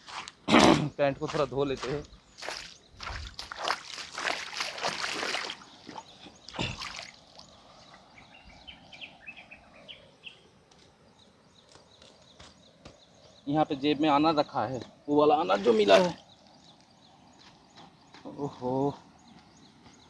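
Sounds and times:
water splashing and sloshing: 2.4s - 8.1s.

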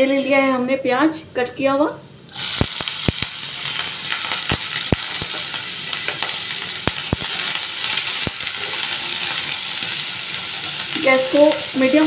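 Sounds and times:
onions sizzling in a pan: 2.3s - 12.0s.

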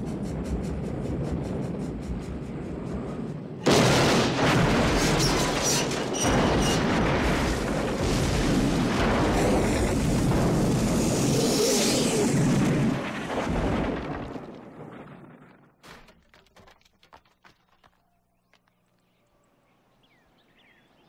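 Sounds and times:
explosion rumble: 0.0s - 15.8s
loud explosion blast: 3.6s - 11.5s.

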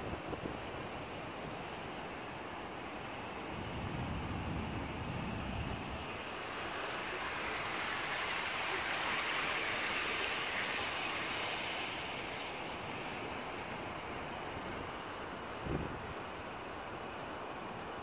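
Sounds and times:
model train rolling past: 6.6s - 12.6s.

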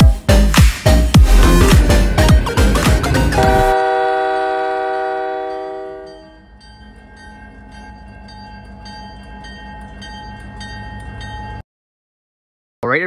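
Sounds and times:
locomotive engine rumble: 0.3s - 11.6s
locomotive air horn chord: 1.2s - 6.4s.

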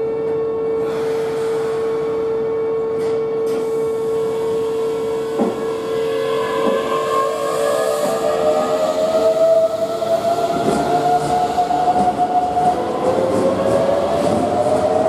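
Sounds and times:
electric train hum: 0.0s - 15.0s.

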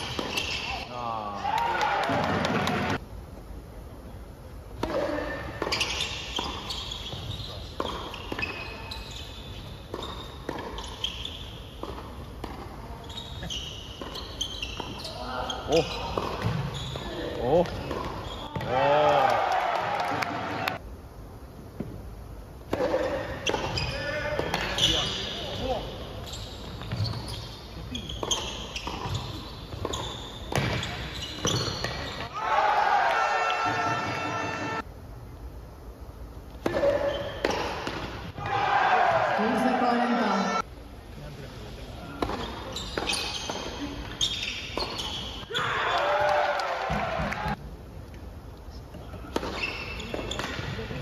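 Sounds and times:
shoes squeaking on court: 0.0s - 0.9s, 5.0s - 18.7s, 22.9s - 32.3s, 36.7s - 38.3s, 42.0s - 45.6s, 49.0s - 51.0s
tennis balls hit by rackets: 4.8s - 8.6s, 9.8s - 11.2s, 11.8s - 12.8s, 15.7s - 16.7s, 17.4s - 20.8s, 22.6s - 24.8s, 28.2s - 32.3s, 36.5s - 38.6s, 42.1s - 45.2s, 49.2s - 51.0s.

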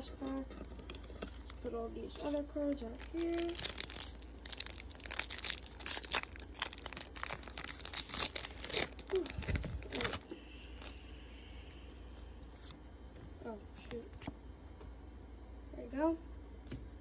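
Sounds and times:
foil wrapper crinkling and tearing: 0.6s - 11.0s.

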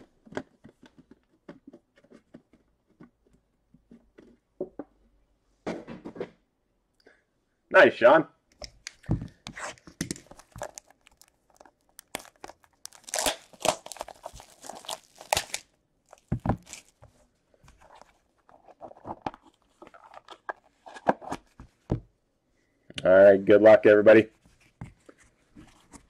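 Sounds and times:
plastic shrink wrap crinkling: 10.2s - 17.1s.

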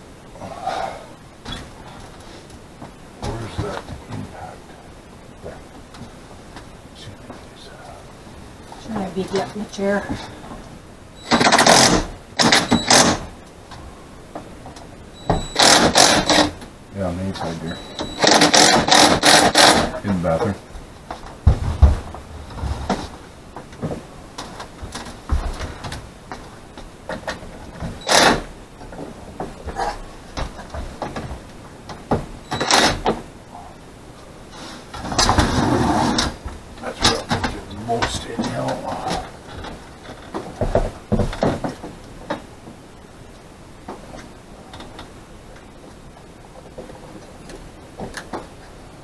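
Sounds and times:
cordless drill driving screws: 15.6s - 16.5s, 18.2s - 19.9s
rough scraping: 34.5s - 36.4s.

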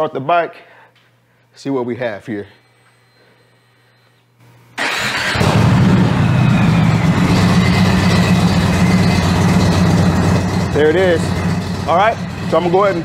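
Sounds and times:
motorcycle engine starting and idling: 4.8s - 13.0s.

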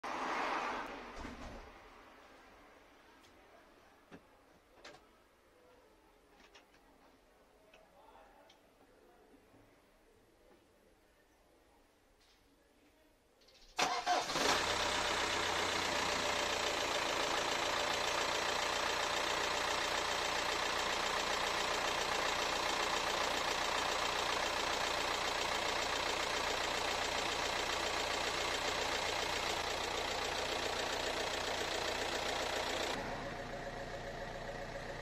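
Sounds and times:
diesel engine idling: 13.9s - 35.0s.

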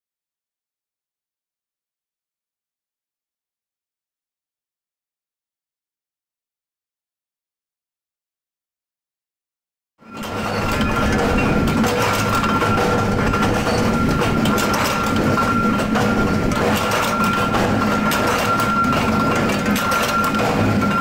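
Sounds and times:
thin steady whine: 10.0s - 21.0s
forging press clattering: 10.1s - 21.0s.

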